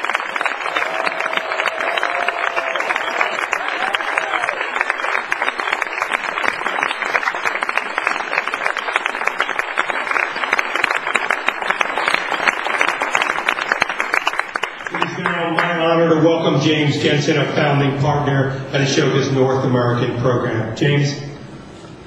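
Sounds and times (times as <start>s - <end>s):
large audience applauding: 0.0s - 15.9s.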